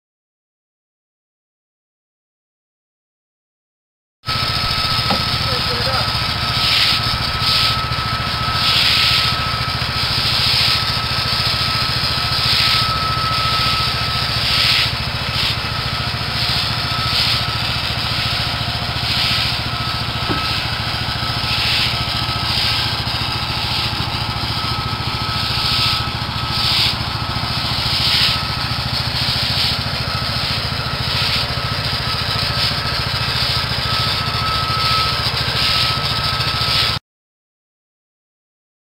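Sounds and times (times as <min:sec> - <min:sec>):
small gasoline engine running: 0:04.3 - 0:37.0
water spray hissing: 0:04.4 - 0:07.8, 0:08.6 - 0:09.4, 0:10.0 - 0:12.9, 0:13.6 - 0:31.6.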